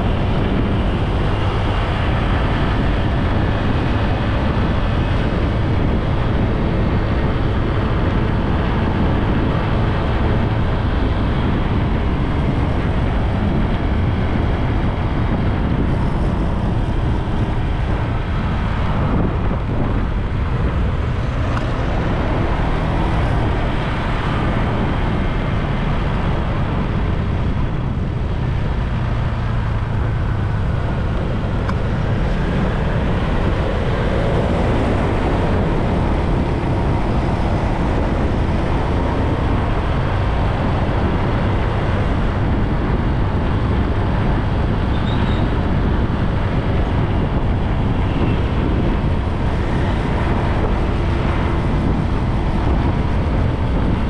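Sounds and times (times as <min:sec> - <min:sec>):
road and passing traffic: 0:00.0 - 0:54.0
wind rumble on microphone: 0:00.0 - 0:54.0.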